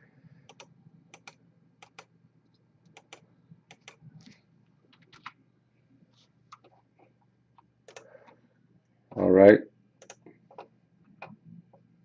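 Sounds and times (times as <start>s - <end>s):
faint low hum: 0.0s - 12.0s
keyboard and mouse clicking: 0.5s - 2.1s, 2.8s - 5.4s, 7.6s - 8.4s, 10.0s - 11.4s.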